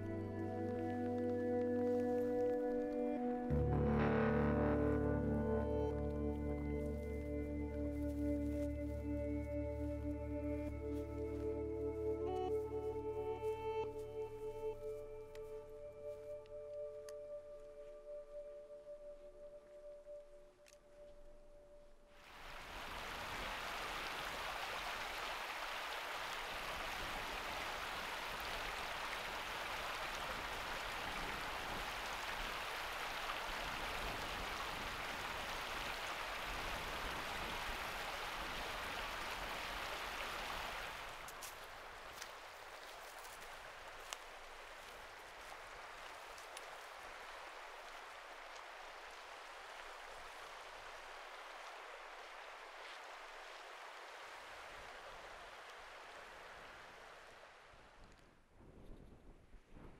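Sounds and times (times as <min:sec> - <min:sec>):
stream rushing among boulders: 0:22.2 - 0:57.8.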